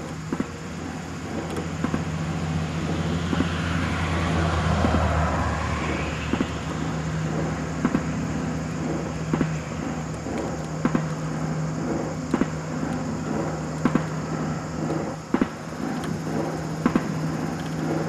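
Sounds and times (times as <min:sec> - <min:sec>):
rushing noise: 0:00.0 - 0:18.0
steady low hum: 0:00.0 - 0:18.0.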